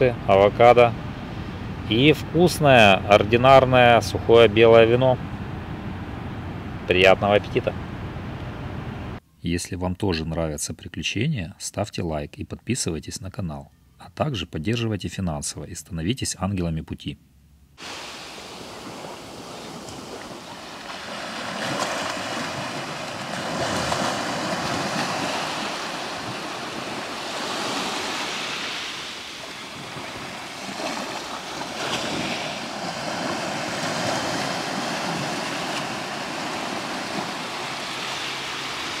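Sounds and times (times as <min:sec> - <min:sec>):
sea waves washing onto shore: 0:17.8 - 0:39.0.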